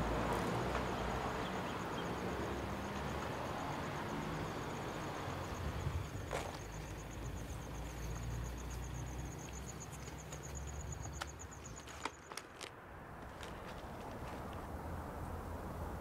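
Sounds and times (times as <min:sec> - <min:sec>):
insect chirping: 0:00.0 - 0:12.7.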